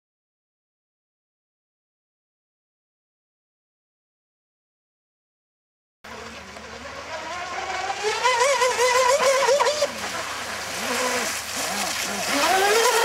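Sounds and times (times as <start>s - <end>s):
boat motor and propeller whine: 6.1s - 13.0s.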